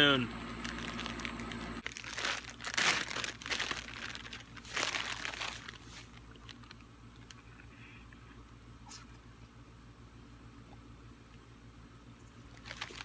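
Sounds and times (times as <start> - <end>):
crinkly plastic packet rustling: 0.5 - 7.4, 12.5 - 13.0.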